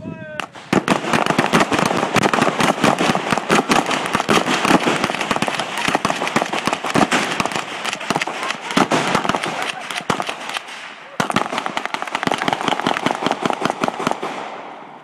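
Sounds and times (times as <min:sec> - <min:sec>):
rapid gunfire volley: 0:00.4 - 0:15.0.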